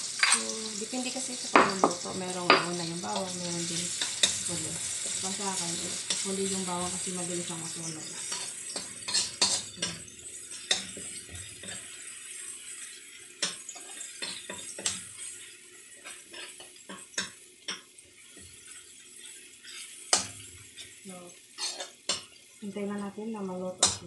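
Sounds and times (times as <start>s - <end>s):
onions sizzling in oil: 0.0s - 24.0s
metal spoon scraping a wok: 3.9s - 10.0s, 19.3s - 21.0s, 21.6s - 22.3s.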